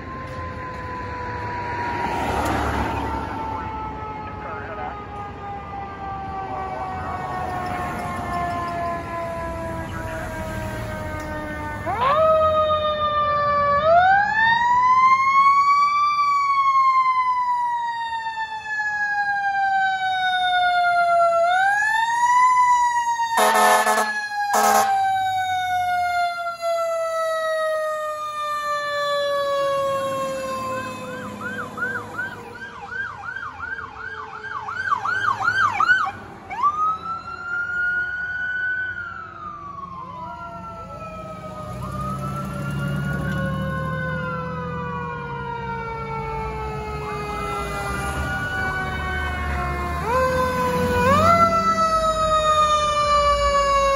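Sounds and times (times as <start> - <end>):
electronic yelp siren: 0.0 - 53.9
wailing siren: 0.0 - 53.9
air horn blasts: 23.4 - 25.1.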